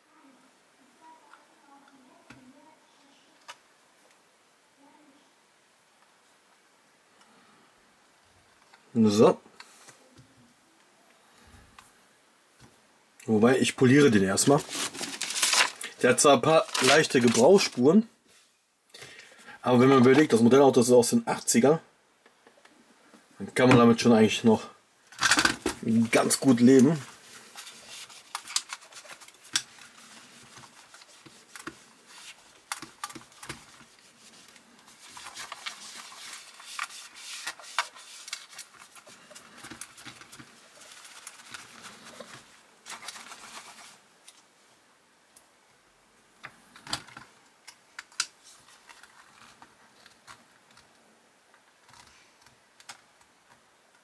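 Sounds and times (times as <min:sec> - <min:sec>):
cloth rubbing on model car: 0:33.8 - 0:38.6.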